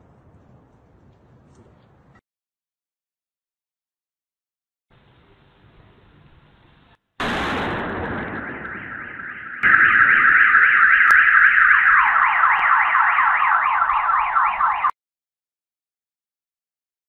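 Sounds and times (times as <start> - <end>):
loud explosion with rumble: 7.2 - 11.8
car alarm warbling and whooping: 8.4 - 15.0.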